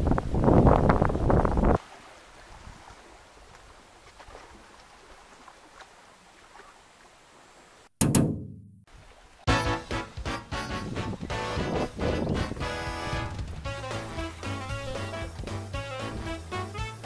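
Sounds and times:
wind buffeting microphone: 0:00.0 - 0:01.8, 0:10.7 - 0:13.7.

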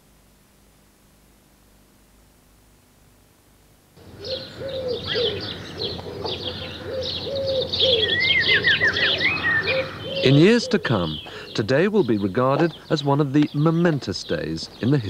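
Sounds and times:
low cooing call: 0:04.0 - 0:11.5
small birds chirping and trilling: 0:04.0 - 0:15.0.

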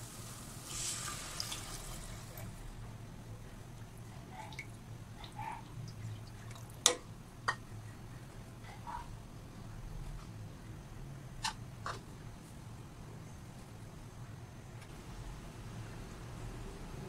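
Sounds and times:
liquid pouring and splashing: 0:00.5 - 0:02.6.

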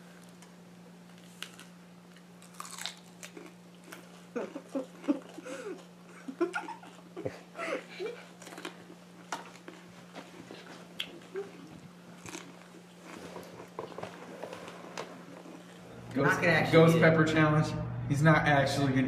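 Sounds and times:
faint steady hum: 0:00.0 - 0:19.0
children crunching peppers: 0:01.1 - 0:15.9.

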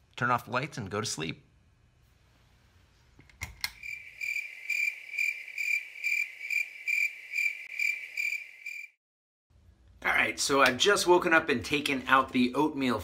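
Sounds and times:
cricket chirping: 0:03.7 - 0:09.0.

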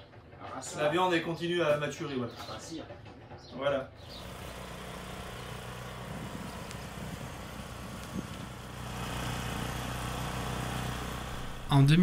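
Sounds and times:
small engine running: 0:04.0 - 0:11.7.

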